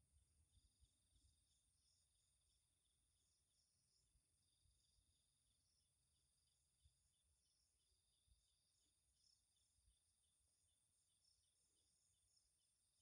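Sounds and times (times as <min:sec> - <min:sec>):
crickets chirping: 0:00.4 - 0:13.0.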